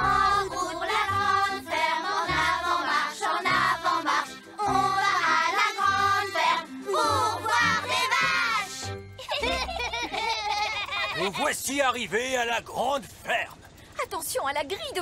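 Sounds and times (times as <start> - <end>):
children singing together: 0.0 - 8.9.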